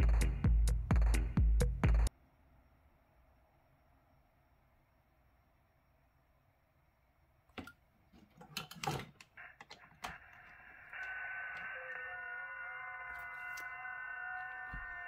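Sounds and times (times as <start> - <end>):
radio band hiss: 9.3 - 15.0.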